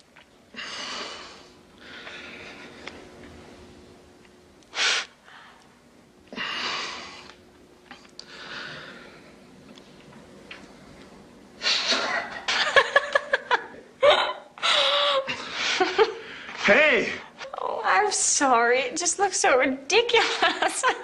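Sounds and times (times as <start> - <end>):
woman laughing: 11.8 - 16.2, 20.1 - 21.0.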